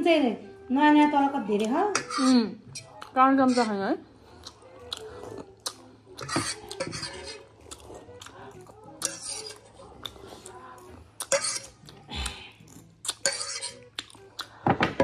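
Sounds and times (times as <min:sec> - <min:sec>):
metal spoon scraping a plate: 0:01.9 - 0:02.9, 0:06.1 - 0:07.6, 0:08.9 - 0:10.6, 0:11.2 - 0:11.8, 0:13.1 - 0:13.9.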